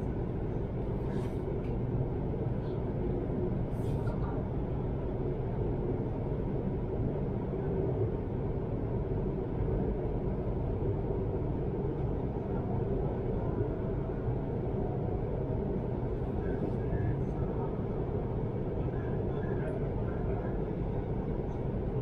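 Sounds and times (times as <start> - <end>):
train rumble inside carriage: 0.0 - 22.0.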